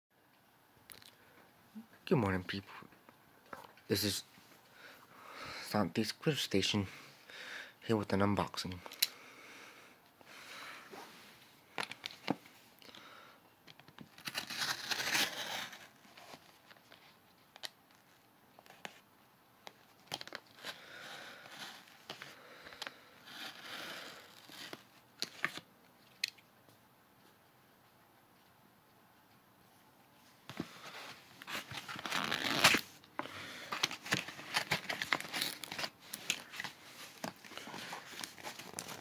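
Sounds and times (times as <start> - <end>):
plastic envelope crinkling: 14.0 - 17.0, 30.5 - 39.0.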